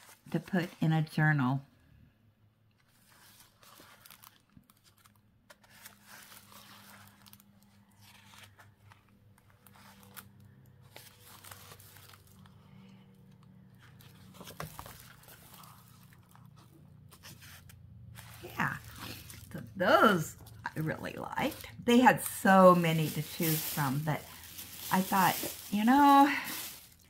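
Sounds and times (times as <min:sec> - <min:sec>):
paper sticker sheets rustling: 0:02.8 - 0:13.0, 0:13.8 - 0:27.0.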